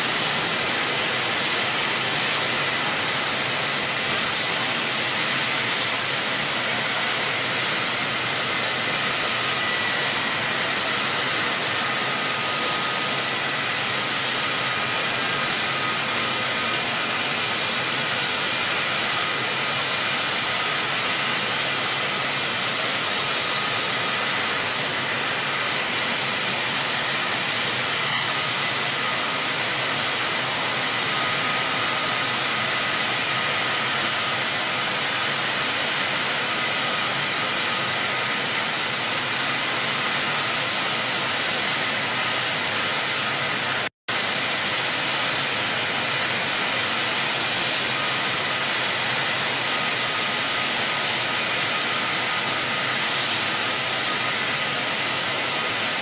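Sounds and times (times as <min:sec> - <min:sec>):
high turbine whine: 0:00.0 - 0:56.0
jet engines running: 0:00.0 - 0:56.0.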